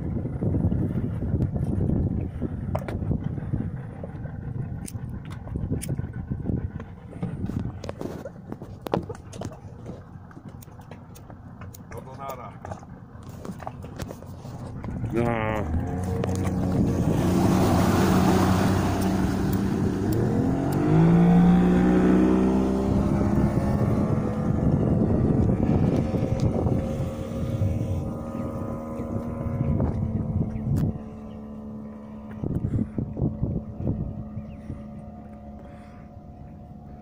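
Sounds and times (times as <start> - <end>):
outboard motor accelerating: 0.0 - 37.0.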